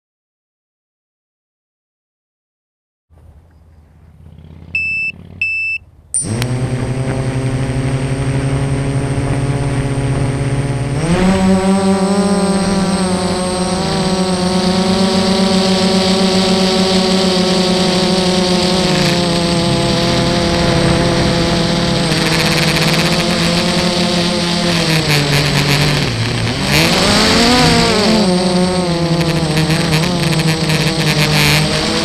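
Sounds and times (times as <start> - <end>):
short electronic beeps: 4.8 - 6.4
quadcopter motors whining: 6.1 - 32.0.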